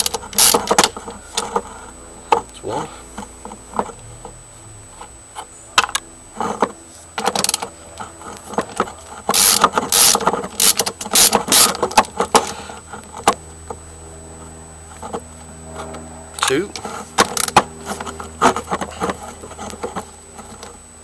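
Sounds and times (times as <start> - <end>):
socket wrench clicking: 9.3 - 11.8.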